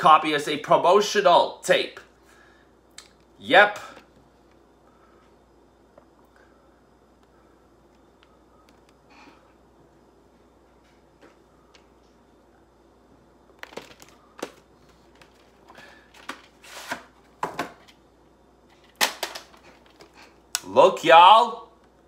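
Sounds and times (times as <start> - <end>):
plastic cassette clicks and rustles: 13.6 - 15.5.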